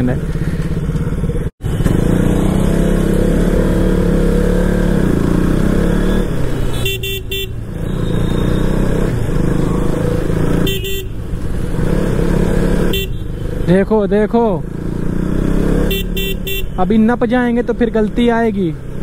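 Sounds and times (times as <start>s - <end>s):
vehicle horn toots: 6.6s - 8.8s, 10.6s - 11.2s, 12.8s - 13.3s, 15.8s - 16.8s.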